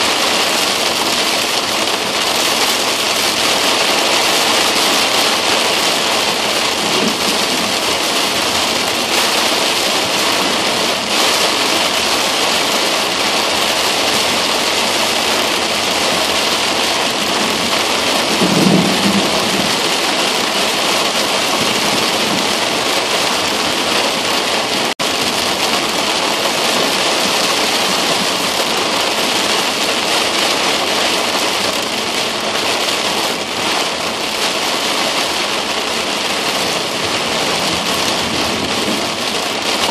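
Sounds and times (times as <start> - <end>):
rain pelting car windshield: 0.0 - 39.9
low thunder rumble: 3.3 - 12.0, 14.2 - 29.8.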